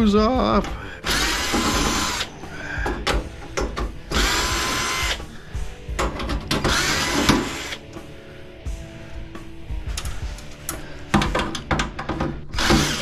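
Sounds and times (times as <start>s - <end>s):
cordless drill motor whine: 1.0s - 2.3s, 4.1s - 5.3s, 6.7s - 7.8s, 12.6s - 13.0s
clicks and rattles: 9.9s - 12.4s.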